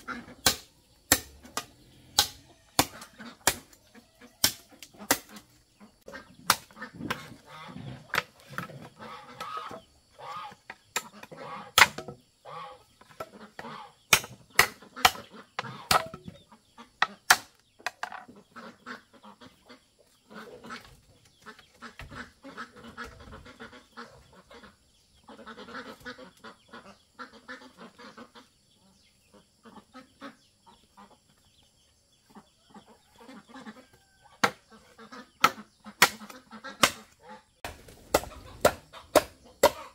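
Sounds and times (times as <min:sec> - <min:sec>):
fowl calling and honking: 0:00.0 - 0:39.9
machete chopping bamboo: 0:00.3 - 0:03.8, 0:04.4 - 0:05.5, 0:06.4 - 0:07.3, 0:11.8 - 0:12.2, 0:14.1 - 0:16.2, 0:17.1 - 0:18.0, 0:34.4 - 0:34.6, 0:35.4 - 0:39.9.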